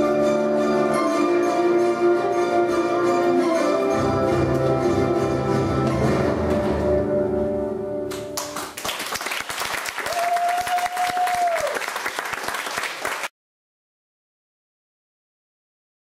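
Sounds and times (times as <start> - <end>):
audience applauding: 8.1 - 13.3.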